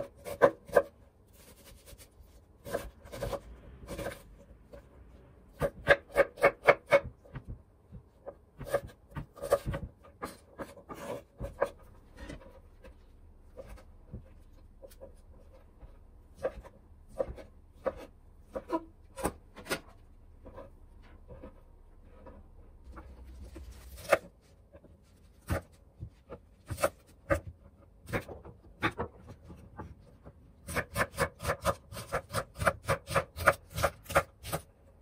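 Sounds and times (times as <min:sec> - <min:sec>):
knife chopping on wooden board: 0:00.0 - 0:00.9, 0:02.6 - 0:04.2, 0:05.5 - 0:12.9, 0:13.6 - 0:22.4, 0:25.4 - 0:29.9, 0:30.6 - 0:34.7.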